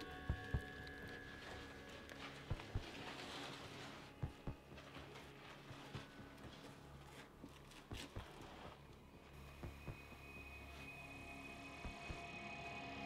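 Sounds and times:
heartbeat thumps: 0:00.2 - 0:00.8, 0:02.5 - 0:02.9, 0:04.2 - 0:04.7.

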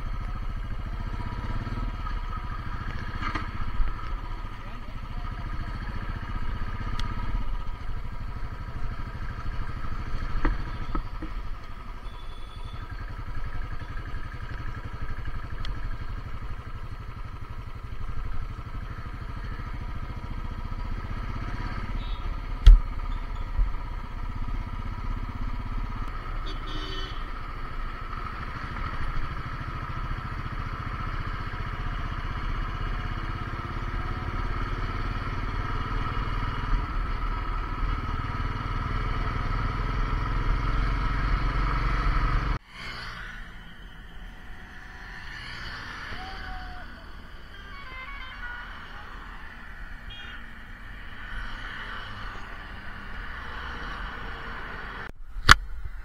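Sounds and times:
motorcycle engine running: 0:00.0 - 0:42.7.

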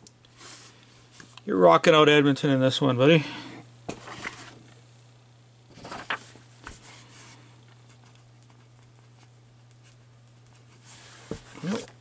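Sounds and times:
low electrical hum: 0:00.0 - 0:12.0
paper rustle: 0:05.7 - 0:08.1.

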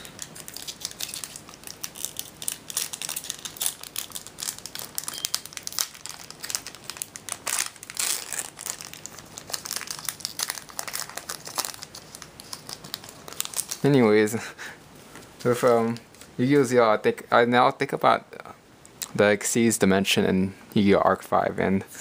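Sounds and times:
foil wrapper crinkling: 0:00.0 - 0:14.1.

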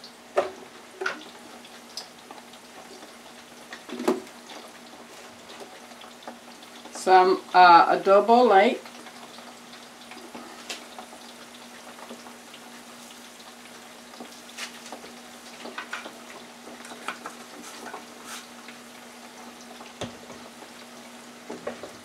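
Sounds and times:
fries sizzling in oil: 0:00.0 - 0:22.0.

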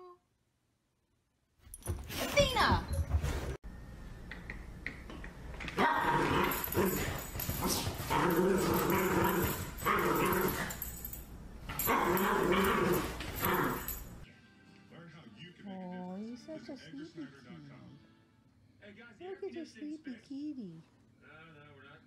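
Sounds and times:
small dog growling in play: 0:05.8 - 0:10.8, 0:11.8 - 0:14.0.

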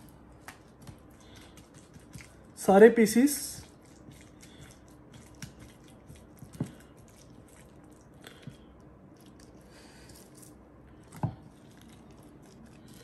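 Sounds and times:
wet squelching of marinated meat: 0:03.3 - 0:10.1.

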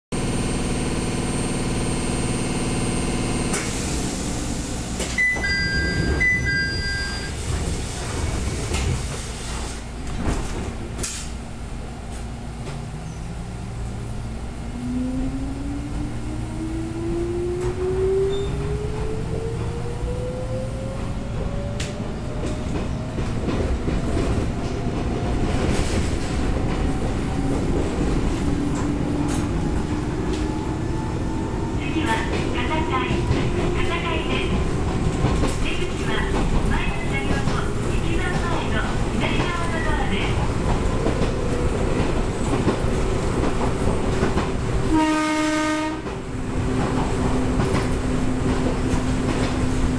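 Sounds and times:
train rumbling: 0:00.1 - 0:49.9
two-tone beeping: 0:05.2 - 0:07.4.

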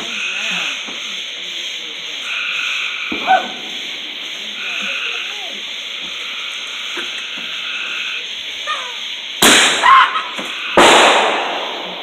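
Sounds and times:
firework bangs: 0:00.0 - 0:12.0.

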